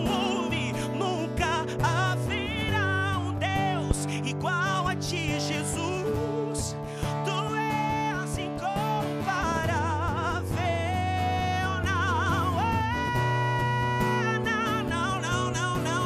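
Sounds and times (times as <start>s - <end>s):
acoustic guitar: 0.0s - 16.0s
man singing worship song: 0.0s - 16.0s.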